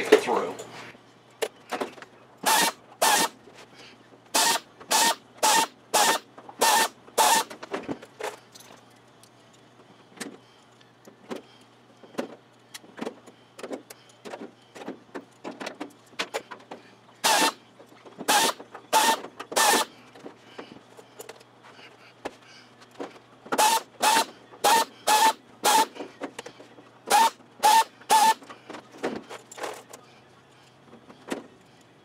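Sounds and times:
pneumatic air drill: 2.4 - 3.4, 4.3 - 7.5, 17.2 - 17.6, 18.2 - 19.9, 23.5 - 26.0, 27.1 - 28.5.

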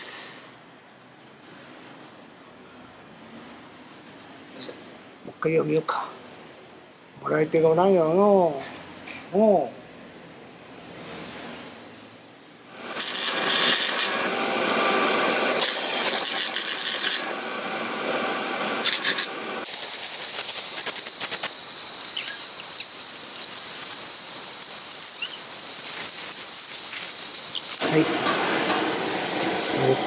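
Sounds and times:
arc welding crackling sizzle: 12.7 - 28.1.

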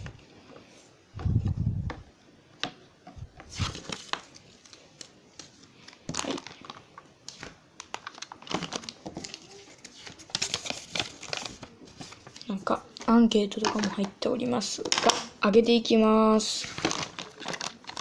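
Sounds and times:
plastic packaging crinkling: 3.4 - 14.2, 16.4 - 18.0.

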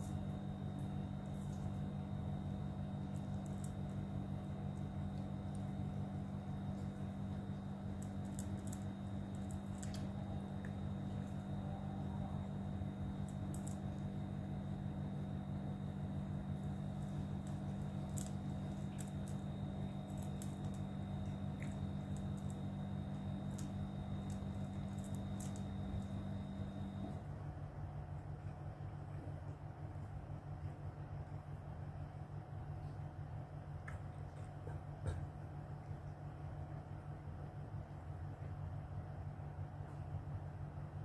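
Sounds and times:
cats crunching dry kibble: 0.0 - 27.5
steady low hum: 0.0 - 41.0.

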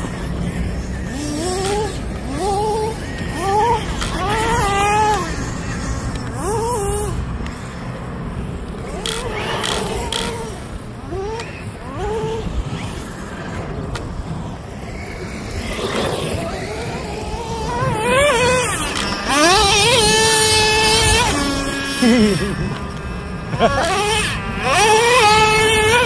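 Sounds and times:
small engine revving: 0.0 - 26.0.

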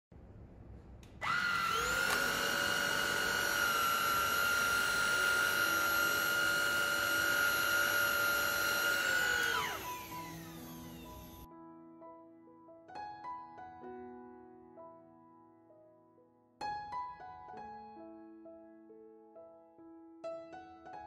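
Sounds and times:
vacuum cleaner motor whine: 1.2 - 11.5.

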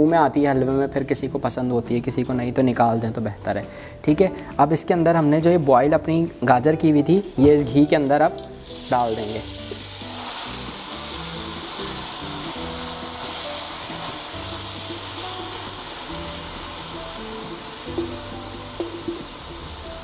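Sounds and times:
background music of held notes: 0.0 - 20.0
carrots sizzling in hot fat: 7.2 - 20.0.

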